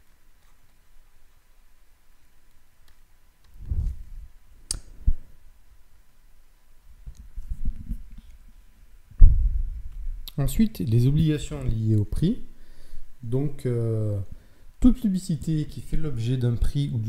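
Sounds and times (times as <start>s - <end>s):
microphone handling thumps: 3.6s - 4.4s, 9.1s - 10.2s.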